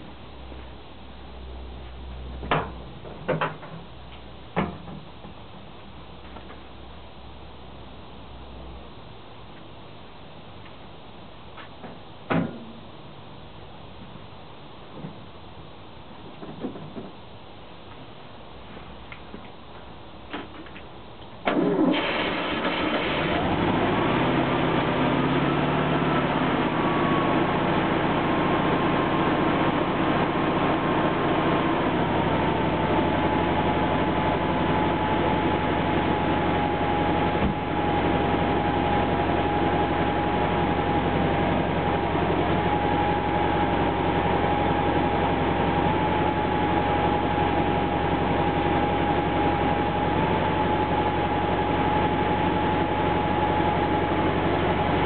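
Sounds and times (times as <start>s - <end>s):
car engine starting and idling: 21.4s - 55.0s.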